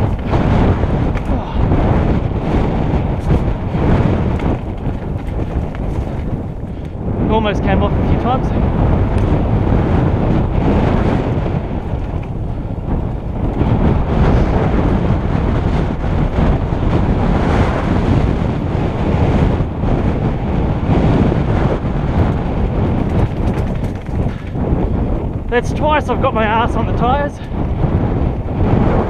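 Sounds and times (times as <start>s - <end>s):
bike rattling over stones: 0.0s - 7.7s, 10.8s - 15.2s, 22.2s - 26.7s
bike tyres rumbling on dirt: 0.0s - 29.0s
wind buffeting microphone: 0.0s - 29.0s.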